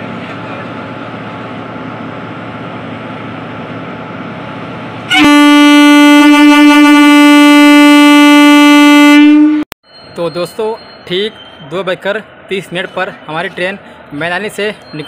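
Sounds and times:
locomotive humming: 0.0s - 15.0s
locomotive horn blast: 5.1s - 9.7s.

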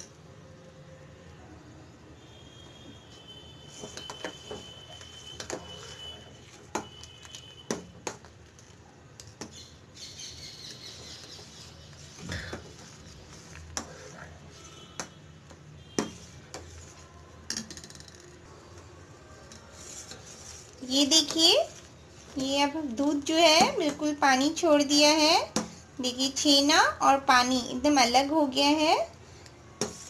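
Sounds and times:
metal spatula scraping a pot: 19.6s - 22.3s.

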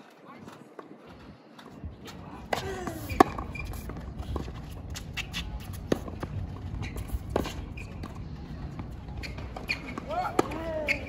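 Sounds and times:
ball bouncing on hard court: 9.2s - 11.0s
racket striking tennis ball: 9.2s - 11.0s.

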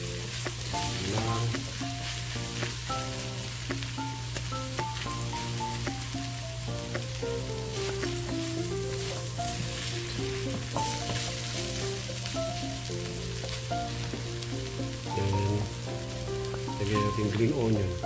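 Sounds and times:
fish sizzling in a wok: 0.0s - 18.0s
soft background music: 0.0s - 18.0s
wooden spatula scraping wok: 7.6s - 17.8s.

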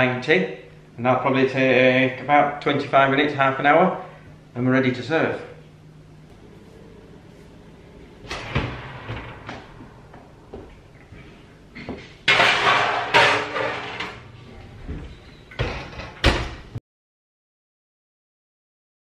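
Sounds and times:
oven door opening: 8.2s - 10.4s, 14.8s - 16.7s
baking dish scraping on rack: 12.2s - 14.4s.

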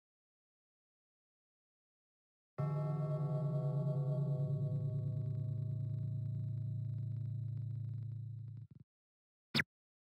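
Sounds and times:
low ringing drone: 2.6s - 8.5s.

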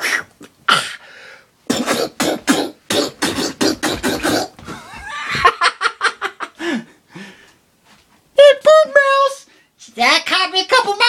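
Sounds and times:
man's wordless vocal bursts: 1.7s - 4.6s.

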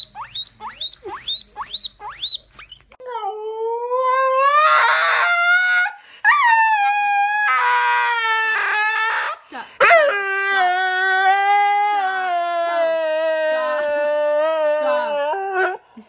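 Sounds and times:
guinea pig squeaking: 0.0s - 3.0s
dog howling: 3.2s - 15.8s.

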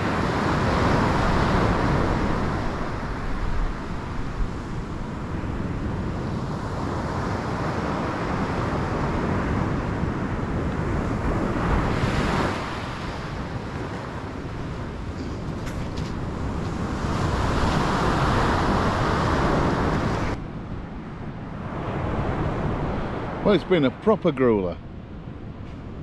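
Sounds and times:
wind rumbling on microphone: 0.0s - 23.6s
surf breaking on beach: 11.2s - 20.4s.

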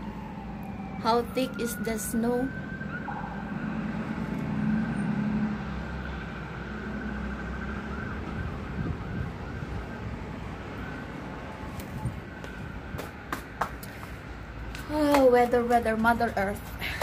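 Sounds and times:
distant emergency siren: 0.0s - 13.3s
traffic rumble: 0.0s - 17.0s.

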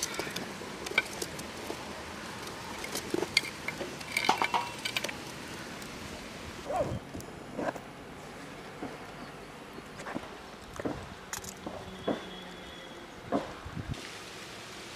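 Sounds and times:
wood fire crackles: 0.0s - 7.9s.

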